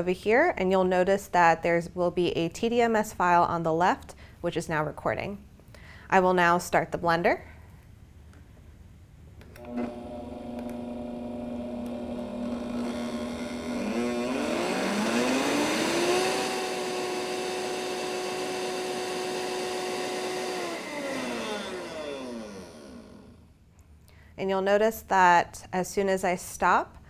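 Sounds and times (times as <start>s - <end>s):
blender motor whining: 9.6s - 23.5s
blender switch click: 10.5s - 10.9s, 11.8s - 12.0s.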